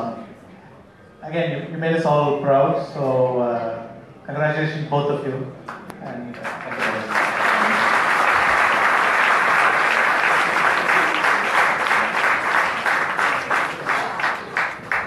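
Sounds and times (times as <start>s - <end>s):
audience applauding: 6.4s - 15.0s.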